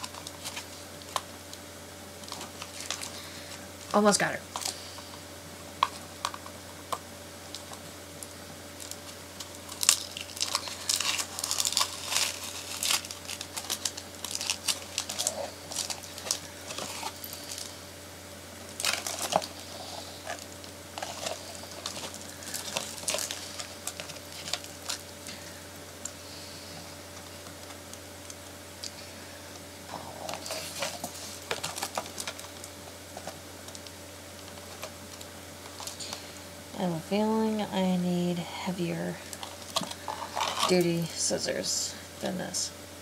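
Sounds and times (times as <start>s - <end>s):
plastic and cardboard crinkling: 0.0s - 5.2s, 8.7s - 17.8s, 18.6s - 29.1s, 29.9s - 36.2s, 39.2s - 41.1s.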